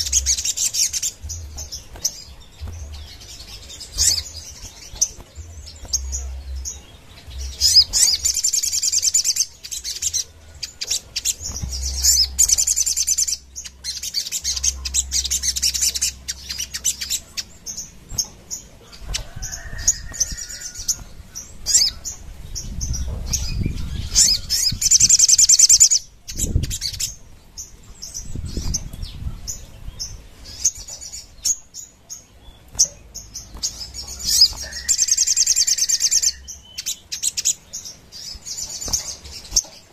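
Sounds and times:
wings fluttering: 0:00.0 - 0:06.3
bird chips: 0:00.0 - 0:27.0, 0:30.5 - 0:39.9
bird singing rapid chattering song: 0:00.0 - 0:39.9.

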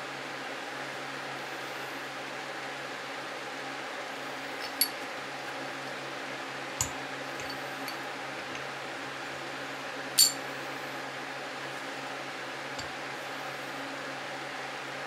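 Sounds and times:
metal gears clinking: 0:10.2 - 0:10.4.

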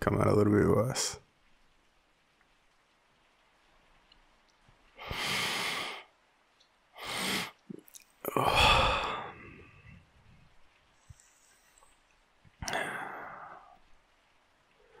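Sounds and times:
man breathing heavily: 0:05.0 - 0:06.2, 0:07.0 - 0:07.6, 0:08.3 - 0:10.1, 0:12.6 - 0:13.8
man sighing: 0:08.2 - 0:10.0, 0:12.6 - 0:13.8.

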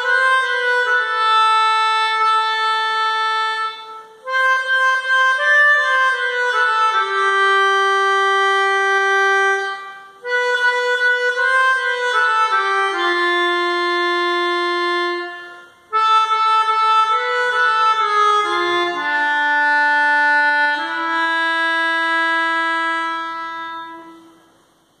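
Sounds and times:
melodica playing hymn melody: 0:00.0 - 0:24.4.

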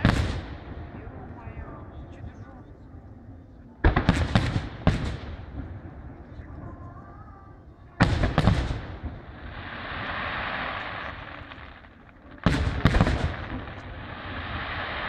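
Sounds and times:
firework bangs: 0:00.0 - 0:00.8, 0:03.8 - 0:05.7, 0:08.0 - 0:15.0
firework hiss: 0:08.1 - 0:15.0.

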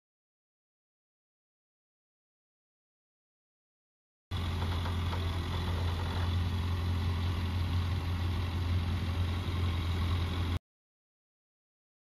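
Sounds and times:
truck engine droning: 0:04.3 - 0:10.6.

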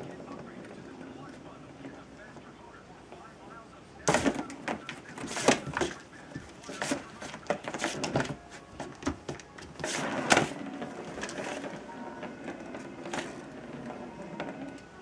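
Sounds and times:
plastic ball rolling around track: 0:00.0 - 0:01.9, 0:09.8 - 0:15.0.

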